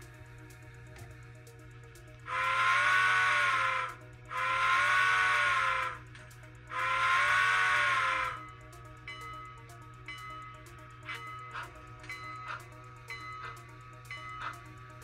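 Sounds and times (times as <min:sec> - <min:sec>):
model train steam whistle: 0:02.2 - 0:06.0, 0:06.7 - 0:08.6.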